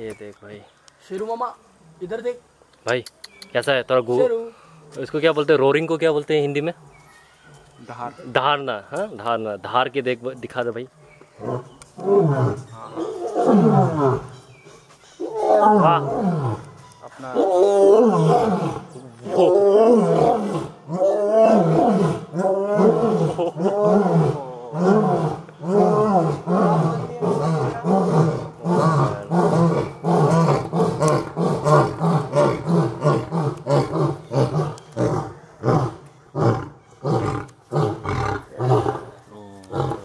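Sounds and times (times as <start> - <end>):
lion roaring: 11.4 - 14.4, 15.2 - 16.7, 17.4 - 40.0.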